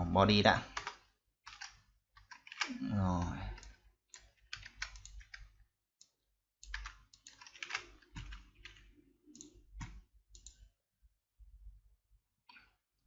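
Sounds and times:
keyboard and mouse clicking: 0.7 - 2.8, 3.5 - 10.7.

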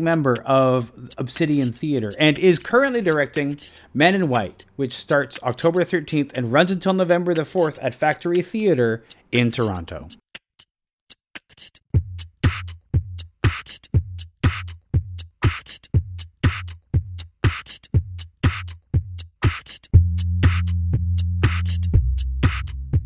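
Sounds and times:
drum-machine beat: 0.0 - 10.7, 11.4 - 23.0.

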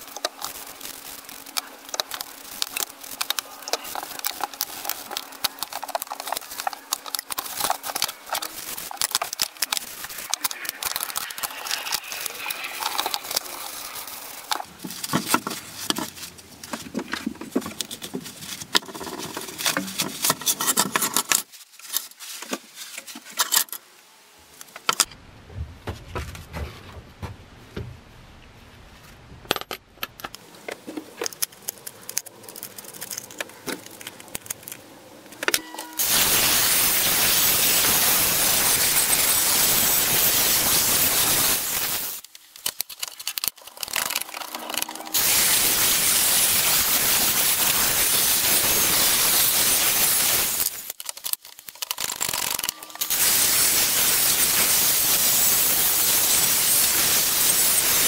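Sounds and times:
paper rustling: 0.0 - 23.4
metal parts clinking: 35.4 - 58.0
angle grinder grinding steel: 35.6 - 42.2, 43.7 - 50.9, 52.2 - 58.0.

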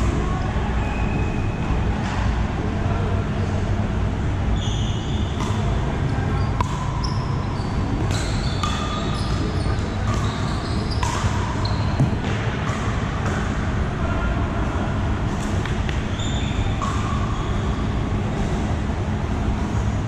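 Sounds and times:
low rumble of hall: 0.0 - 20.0
sneaker squeaks on court floor: 4.5 - 12.9, 16.0 - 18.0.

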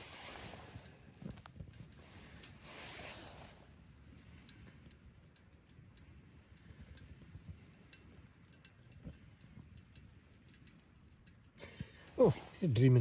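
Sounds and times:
faint small ticks and clicks: 0.0 - 12.2.

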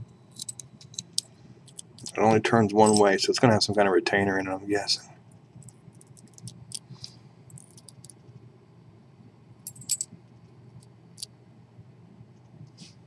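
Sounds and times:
metallic clicks of padlock and key: 0.4 - 2.2.

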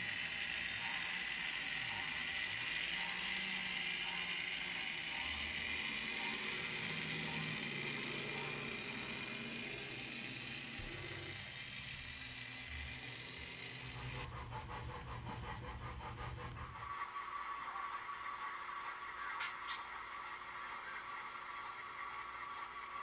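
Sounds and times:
model train hum: 0.0 - 23.0.

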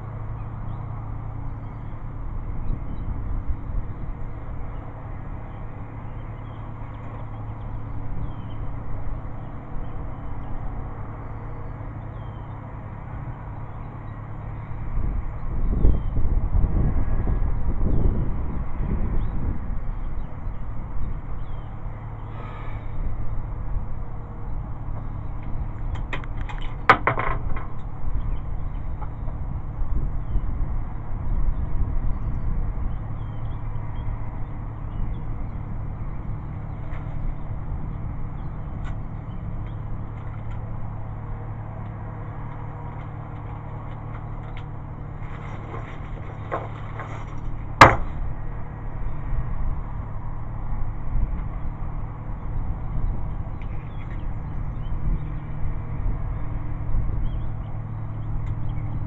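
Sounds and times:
wind rumble on microphone: 0.0 - 59.0.

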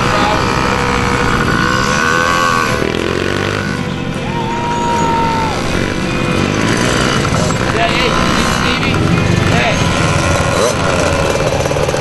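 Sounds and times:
mini dirt bike engines buzzing: 0.0 - 12.0
people shouting: 4.0 - 6.5.

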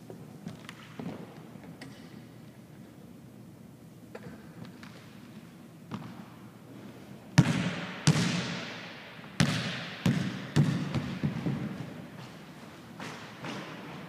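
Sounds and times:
basketball bouncing on hardwood floor: 7.4 - 8.4, 9.4 - 11.8.

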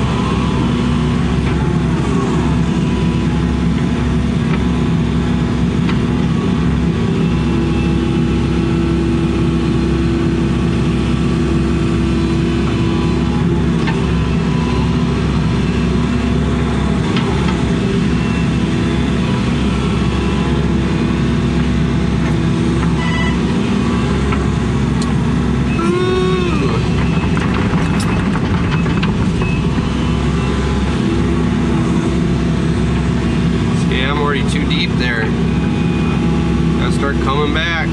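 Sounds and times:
excavator diesel engine running: 0.0 - 37.9
hydraulic whine: 11.2 - 37.9.

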